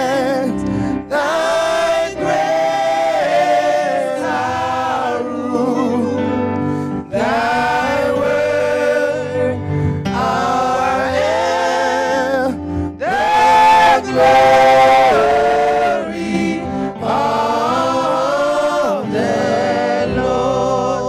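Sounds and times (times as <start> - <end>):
backing music: 0.0 - 21.0.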